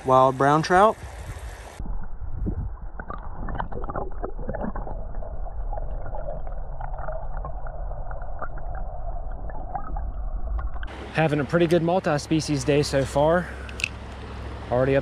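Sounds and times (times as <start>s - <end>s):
underwater creek rush: 0.0s - 15.0s
small underwater clicks and knocks: 13.7s - 14.2s.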